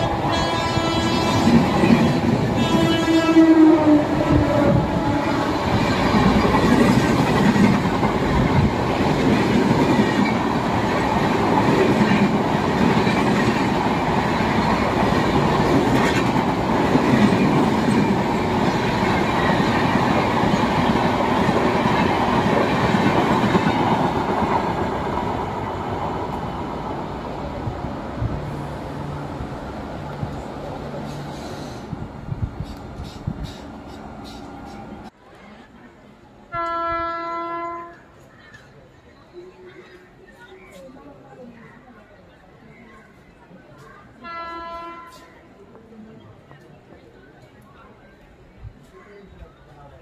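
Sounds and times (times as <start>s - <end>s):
locomotive horn: 0.0s - 5.7s, 36.5s - 38.1s, 44.2s - 45.3s.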